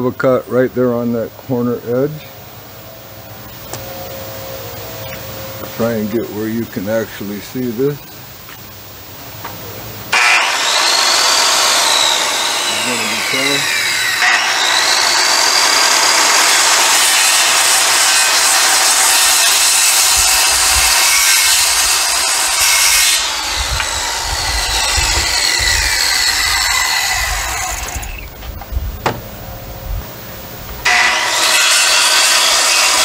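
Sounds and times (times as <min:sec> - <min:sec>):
circular saw cutting wood: 0:05.6 - 0:08.0, 0:10.1 - 0:28.4, 0:30.8 - 0:33.0
knocks: 0:29.0 - 0:29.3.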